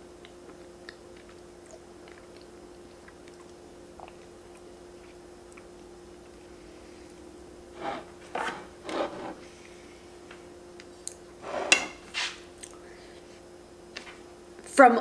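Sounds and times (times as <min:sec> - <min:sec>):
faint steady hum: 0:00.0 - 0:15.0
plastic fork scraping a plate: 0:07.8 - 0:09.4.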